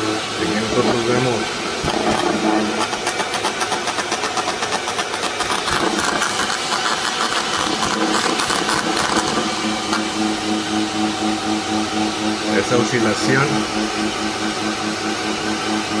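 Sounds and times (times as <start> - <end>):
pulsing hissing buzz: 0.0 - 16.0
low pulsing hum: 7.7 - 16.0.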